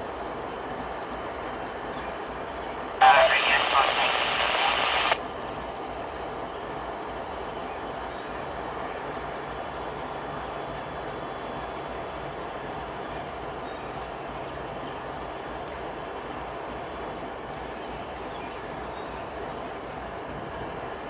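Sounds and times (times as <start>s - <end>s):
diesel locomotive engine rumble: 0.0s - 21.0s
rail and wheel noise: 0.0s - 21.0s
voice over a radio: 3.0s - 5.2s.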